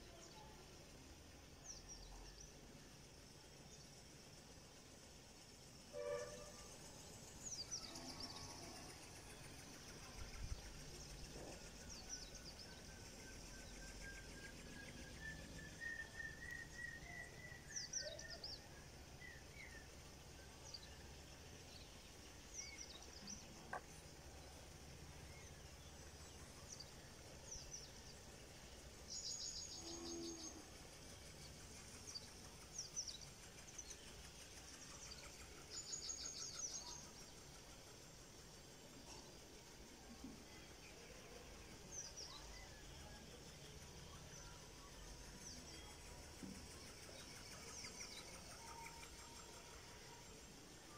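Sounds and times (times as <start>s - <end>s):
rising whistled bird call: 14.1s - 18.4s.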